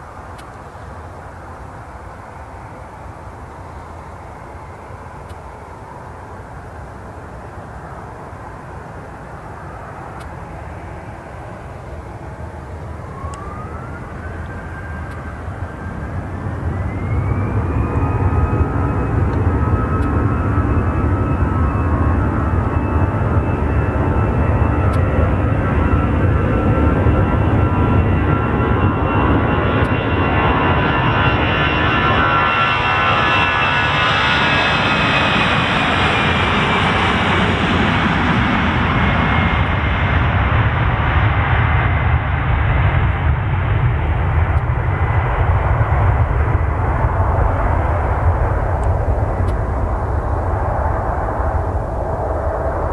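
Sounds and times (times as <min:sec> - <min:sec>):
jet engine rumble: 0:00.0 - 0:52.9
jet engine whine: 0:00.0 - 0:52.9.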